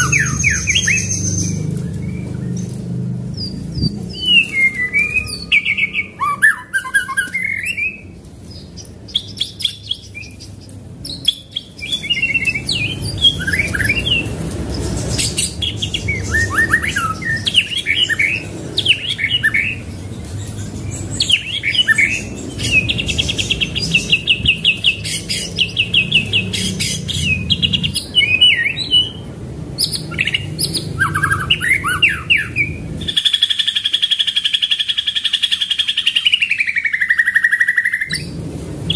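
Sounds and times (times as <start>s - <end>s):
bird singing whistled phrases: 4.1s - 8.0s.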